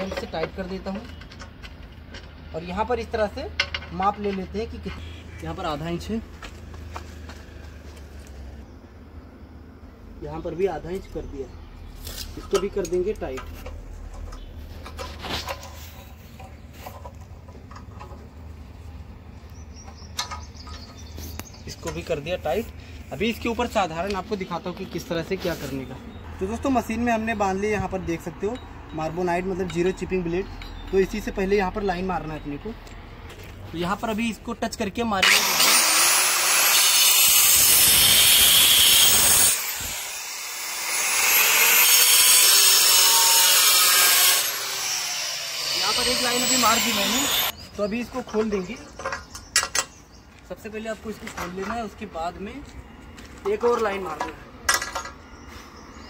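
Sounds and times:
power cutter grinding stone: 0:35.2 - 0:47.6.

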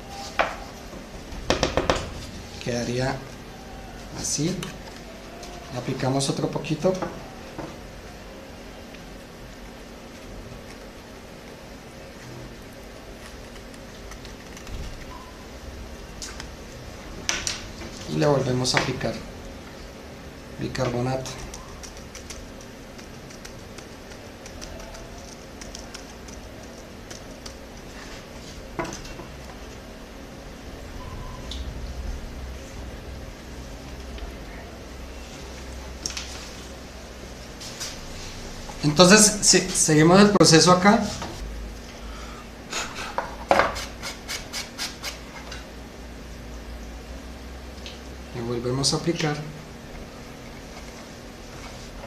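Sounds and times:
steady low hum: 0:00.0 - 0:52.0
paper tapping ticks: 0:21.4 - 0:27.8.

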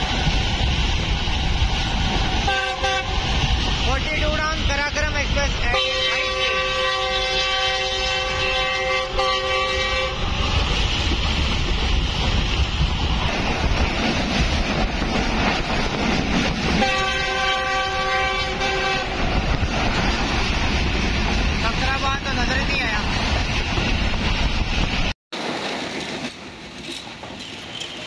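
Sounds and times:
moving train rumble: 0:00.0 - 0:28.0
train horn blasts: 0:02.5 - 0:03.3, 0:05.7 - 0:10.2, 0:16.8 - 0:19.2.

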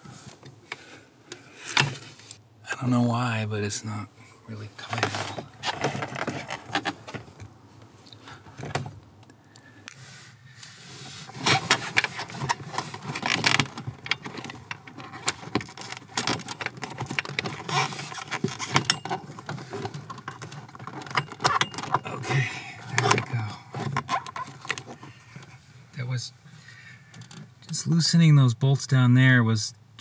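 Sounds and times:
metal tools clinking and rattling: 0:11.6 - 0:22.2.

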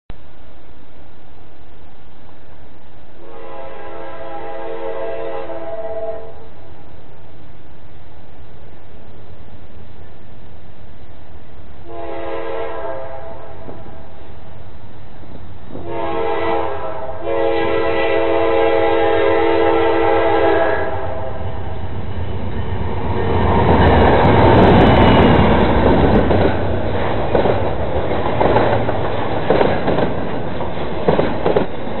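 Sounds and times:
train rumble: 0:00.1 - 0:32.0
locomotive air horn blasts: 0:03.2 - 0:06.4, 0:11.8 - 0:14.0, 0:15.7 - 0:21.5
wheels clacking on rails: 0:21.4 - 0:32.0.

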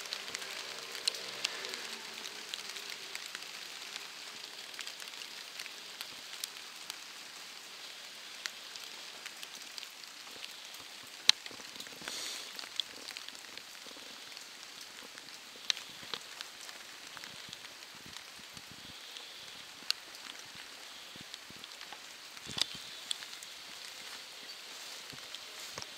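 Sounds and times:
raindrops ticking close by: 0:00.0 - 0:25.9
steady rain falling: 0:00.0 - 0:25.9.

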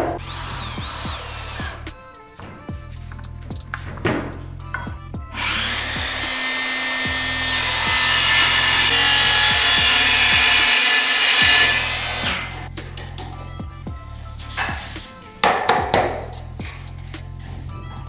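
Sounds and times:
circular saw cutting wood: 0:00.0 - 0:02.5, 0:05.3 - 0:12.7
background music: 0:00.0 - 0:18.0.

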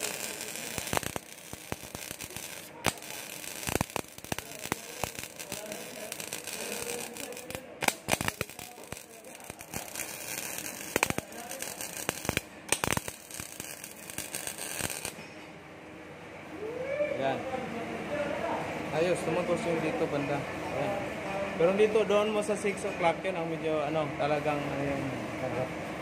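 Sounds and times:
spatter popping: 0:00.0 - 0:15.2
welding arc crackling: 0:00.0 - 0:15.2.

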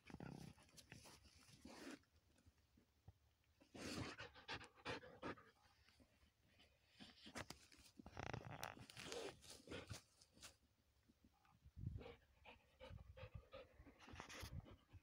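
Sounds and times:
dog panting hard: 0:12.0 - 0:15.0.

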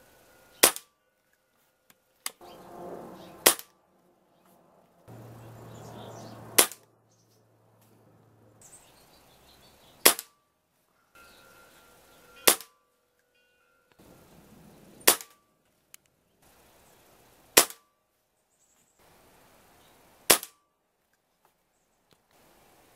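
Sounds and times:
air rifle shots: 0:00.6 - 0:00.9, 0:03.3 - 0:03.8, 0:06.5 - 0:06.9, 0:10.0 - 0:10.4, 0:12.4 - 0:12.7, 0:15.0 - 0:15.4, 0:17.6 - 0:17.8, 0:20.3 - 0:20.6.

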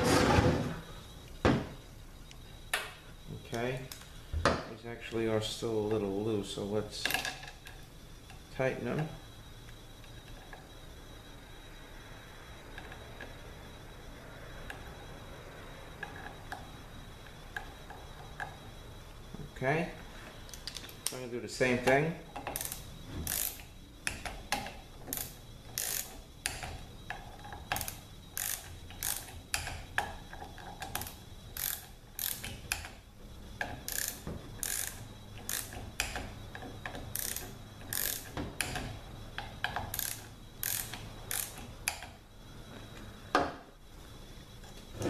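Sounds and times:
socket ratchet clicking: 0:27.7 - 0:29.8, 0:30.8 - 0:32.9, 0:33.7 - 0:36.2, 0:37.1 - 0:38.8, 0:39.6 - 0:42.1.

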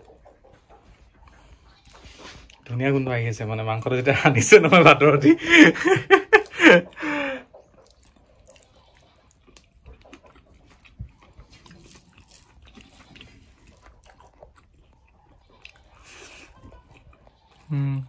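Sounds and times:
person chewing: 0:06.2 - 0:18.0.

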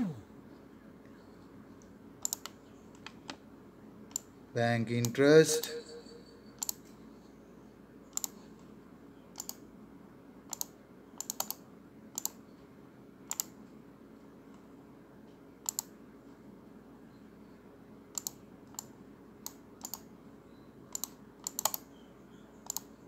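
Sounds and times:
computer mouse button clicking: 0:09.4 - 0:09.6, 0:10.5 - 0:11.6, 0:13.3 - 0:13.5, 0:15.6 - 0:15.9, 0:18.2 - 0:20.0, 0:20.9 - 0:21.8.

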